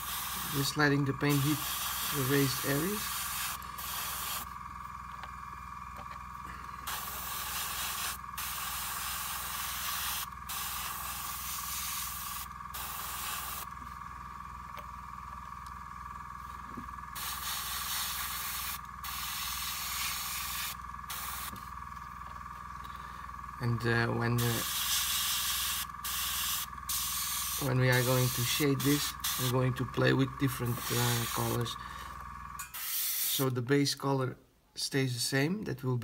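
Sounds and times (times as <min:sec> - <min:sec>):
airbrush spraying hiss: 0:00.0 - 0:04.6, 0:06.8 - 0:13.7, 0:17.2 - 0:21.7, 0:24.4 - 0:29.8, 0:30.4 - 0:31.8, 0:32.7 - 0:33.5
steady low hum: 0:00.0 - 0:36.0.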